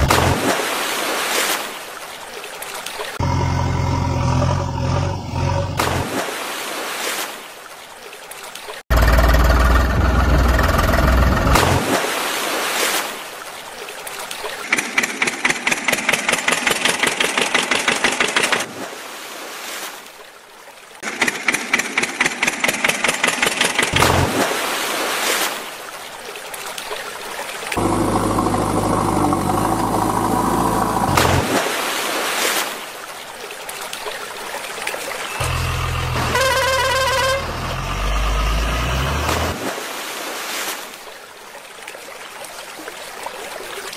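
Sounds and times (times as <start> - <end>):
water splashing: 0.0 - 43.9
engine hum: 3.2 - 6.2, 8.9 - 11.9, 27.7 - 31.6, 35.4 - 39.9.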